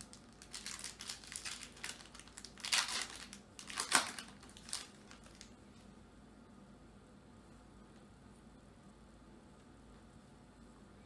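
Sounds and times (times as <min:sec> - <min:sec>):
plastic wrapper tearing and crumpling: 0:00.0 - 0:05.6.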